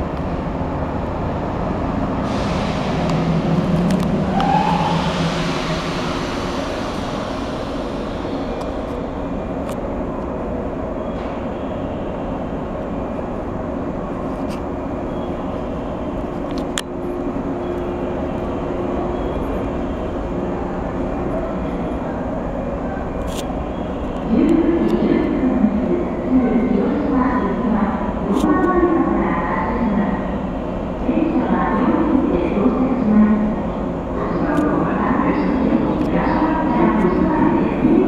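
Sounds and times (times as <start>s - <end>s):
steady low tones: 0.0s - 10.9s
electric train equipment humming: 0.0s - 11.0s.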